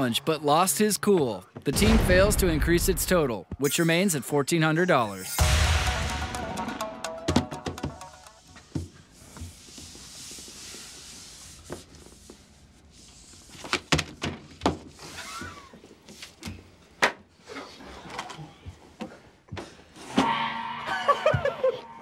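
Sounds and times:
loud burst of noise: 1.8s - 3.2s.

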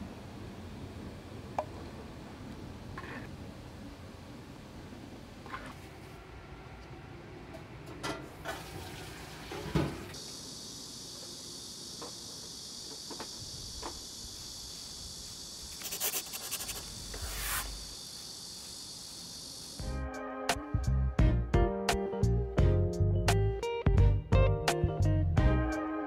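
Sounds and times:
insect chirring: 10.2s - 19.8s.

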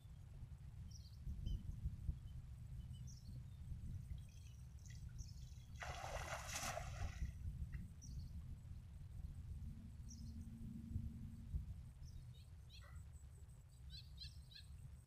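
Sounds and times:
water splash: 5.8s - 7.3s.

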